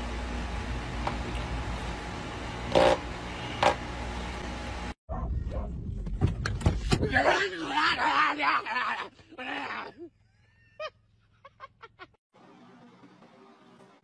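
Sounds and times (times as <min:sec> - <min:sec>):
electric fan hum: 0:00.0 - 0:05.0
outdoor noise: 0:00.0 - 0:14.0
dog barking: 0:05.1 - 0:05.7.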